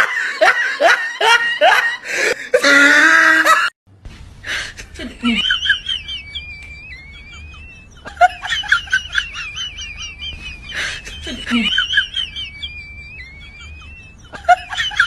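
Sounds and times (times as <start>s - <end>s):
high chirpy squeaks: 5.7s - 15.0s
gliding whistle-like tone: 5.8s - 15.0s.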